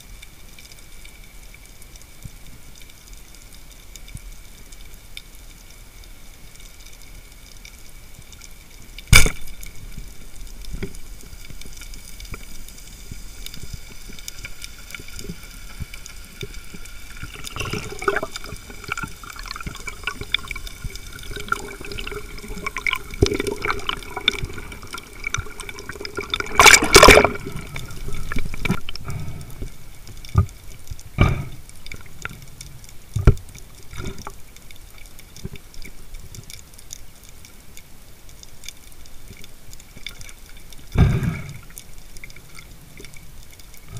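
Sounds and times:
underwater noise: 0.0 - 43.9
speargun firing underwater: 9.1 - 9.6, 26.2 - 27.5.

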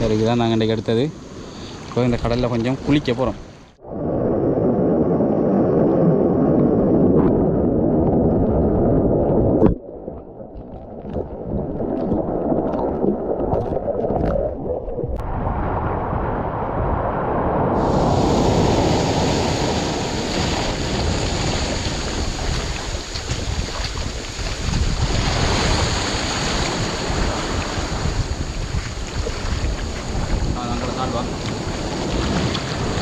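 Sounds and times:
wind buffeting microphone: 15.0 - 33.0
surf washing on shore: 15.2 - 33.0.

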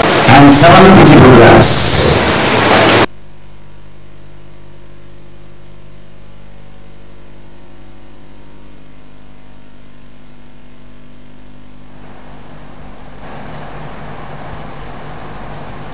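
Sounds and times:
hissy noise: 0.0 - 3.1
electrical hum with high whine: 0.0 - 15.9.

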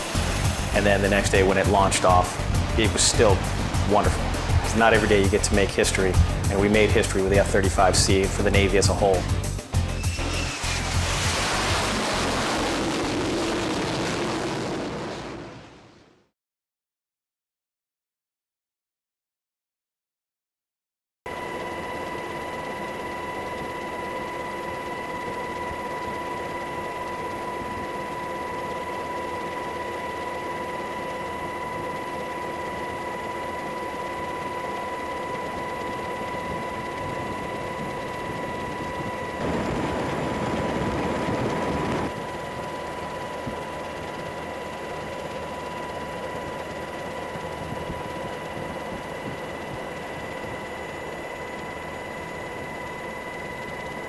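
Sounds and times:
aircraft engine drone: 0.0 - 15.7, 21.3 - 54.0
loud rushing noise: 10.2 - 13.6.

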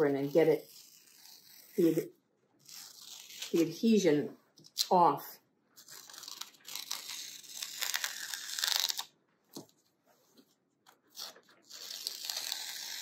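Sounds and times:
tape peeling off paper: 2.6 - 3.7, 5.8 - 9.2, 10.8 - 13.0.

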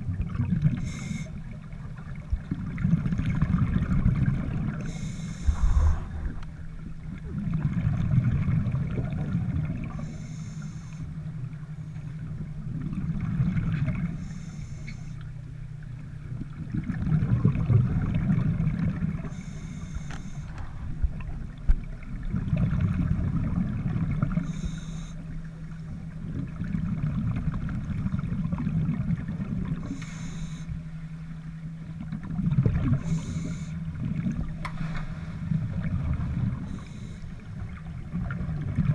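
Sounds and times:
exhaled bubbles underwater: 0.0 - 38.9
steady low hum: 0.0 - 38.9
breathing through a regulator: 0.7 - 1.5, 4.8 - 6.4, 9.9 - 11.2, 14.1 - 15.2, 19.2 - 20.7, 24.4 - 25.4, 29.8 - 30.8, 32.9 - 33.9, 36.6 - 37.5.

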